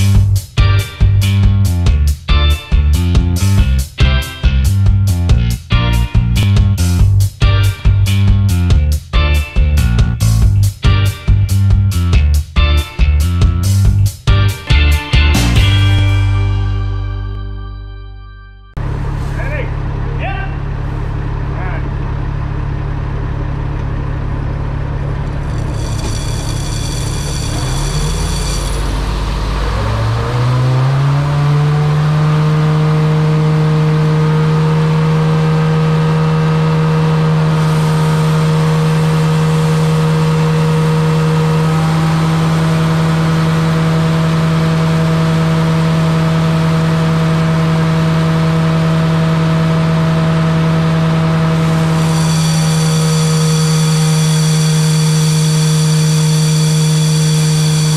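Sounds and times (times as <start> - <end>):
engine rumble: 0.0 - 57.9
vacuum fan hum and whine: 37.4 - 57.9.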